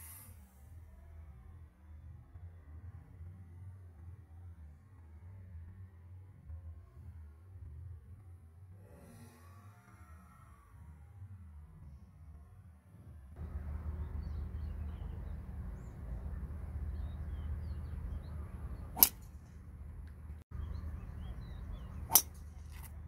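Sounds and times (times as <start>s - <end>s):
low outdoor rumble: 0.0s - 23.0s
golf club striking ball: 19.0s - 19.4s, 22.0s - 23.0s.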